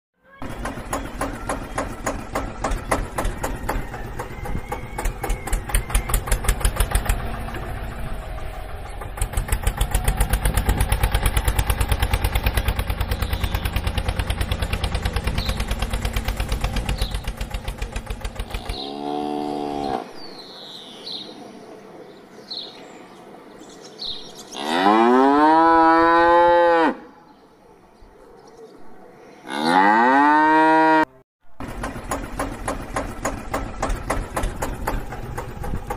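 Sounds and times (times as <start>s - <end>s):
tractor engine chugging: 0.4s - 18.8s, 31.5s - 35.9s
cow mooing: 18.6s - 20.2s, 24.5s - 27.1s, 29.4s - 31.2s.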